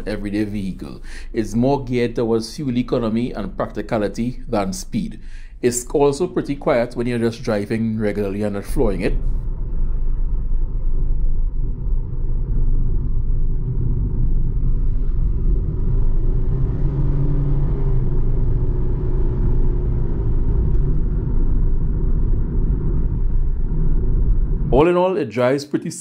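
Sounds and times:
road and tyre rumble: 9.2s - 24.8s.

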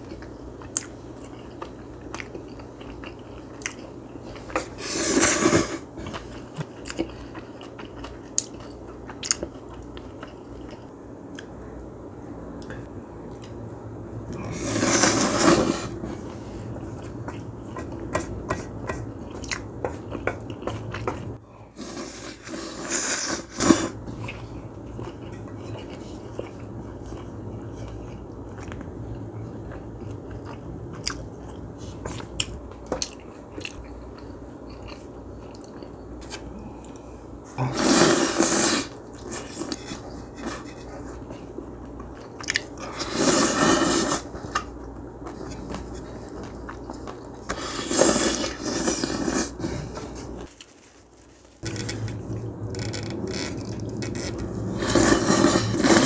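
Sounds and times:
chewing with small clicks: 0.0s - 4.6s, 6.2s - 11.5s, 24.2s - 37.1s, 41.8s - 42.7s
wet noodle slurps: 14.5s - 15.9s, 37.7s - 39.8s, 42.9s - 44.4s, 47.5s - 49.7s, 54.7s - 56.0s.

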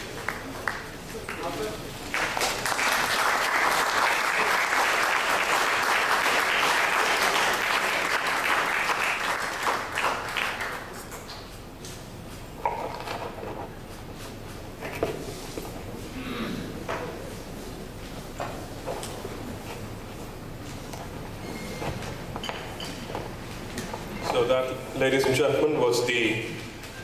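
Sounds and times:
audience applauding: 0.0s - 11.1s.

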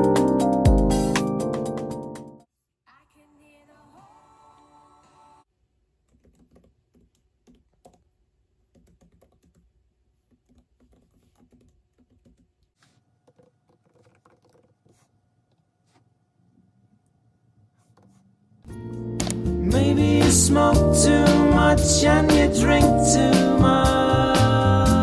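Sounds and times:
laptop keyboard typing: 6.0s - 15.1s.

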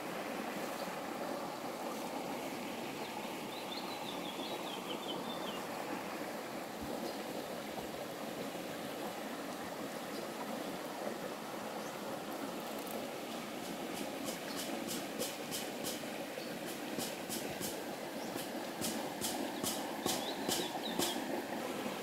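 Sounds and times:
river water rushing: 0.0s - 22.0s.

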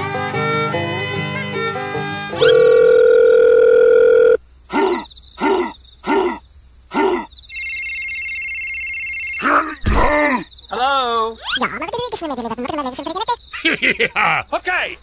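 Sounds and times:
short rising and falling bleeps: 2.4s - 4.4s
steady electronic beeping tone: 2.4s - 4.4s.

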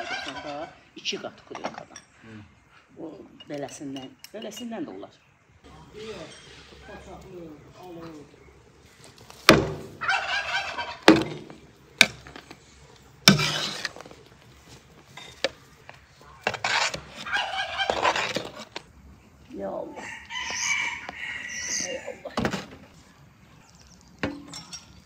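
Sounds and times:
turkey gobbling: 0.0s - 0.9s, 9.9s - 11.3s, 17.2s - 18.3s, 19.9s - 22.3s.

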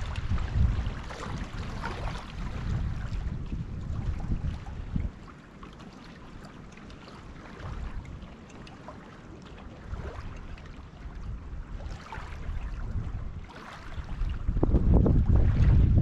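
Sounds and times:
wind noise on microphone: 0.0s - 5.3s, 7.6s - 8.4s, 9.8s - 16.0s
light water splashes: 0.0s - 16.0s.

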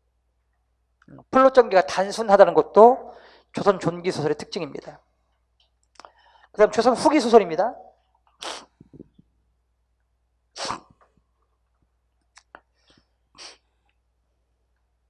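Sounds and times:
man's breathy bursts into microphone: 3.1s - 3.6s, 6.0s - 6.6s.

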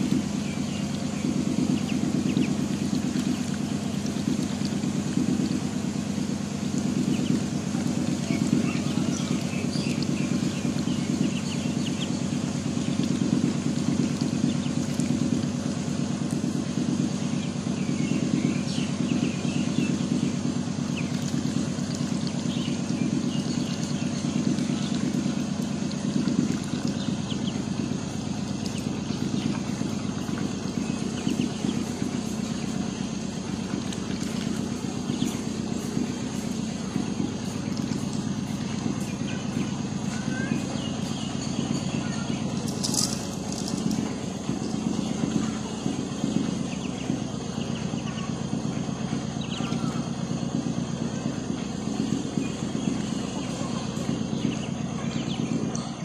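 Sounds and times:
motor drone: 0.0s - 56.0s
ducklings peeping: 0.1s - 4.7s, 6.9s - 13.4s, 28.6s - 50.5s.

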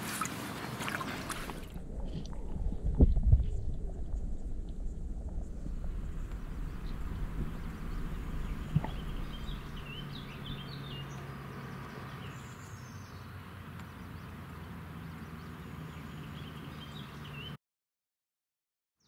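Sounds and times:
low hum: 1.2s - 12.4s
small birds chirping: 5.6s - 17.6s.

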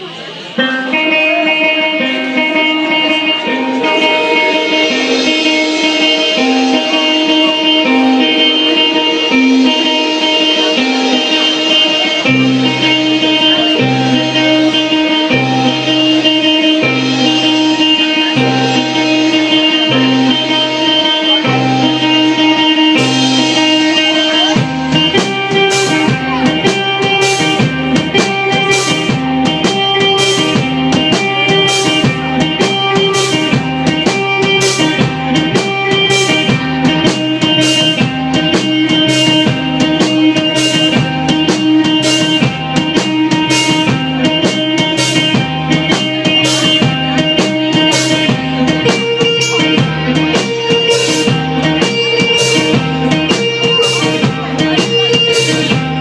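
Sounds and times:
electric guitar: 0.0s - 56.0s
drum kit steady beat: 0.9s - 56.0s.

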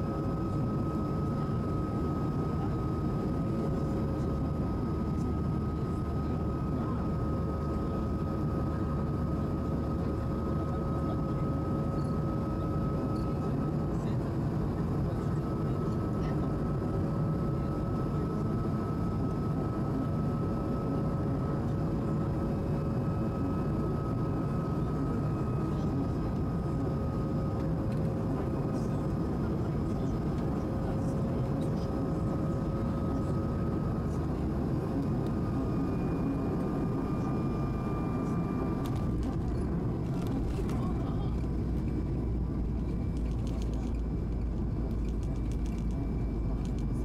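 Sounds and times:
faint steady tones: 0.0s - 47.0s
aircraft cabin low rush: 38.4s - 47.0s.

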